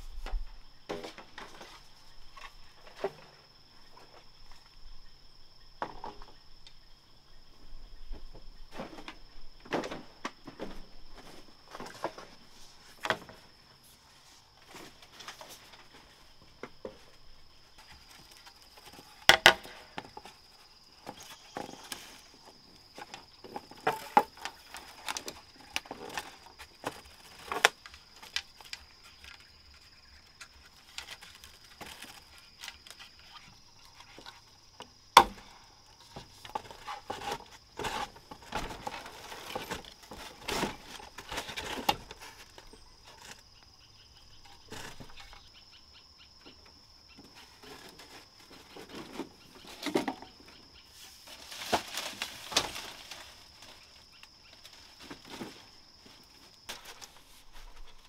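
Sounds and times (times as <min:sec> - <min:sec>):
wood knocks and clicks: 0:19.3 - 0:20.2.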